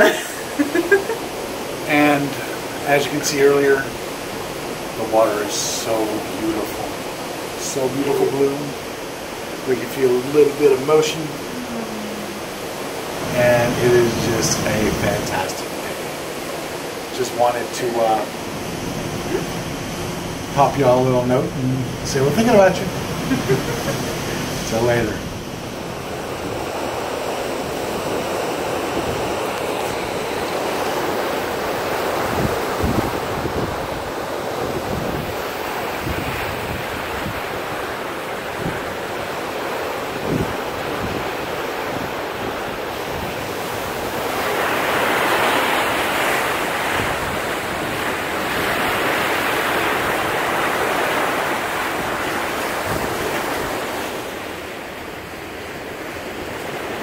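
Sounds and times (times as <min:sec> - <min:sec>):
rush of the sea: 0:00.0 - 0:57.0
wind buffeting microphone: 0:18.3 - 0:39.4, 0:40.0 - 0:45.2.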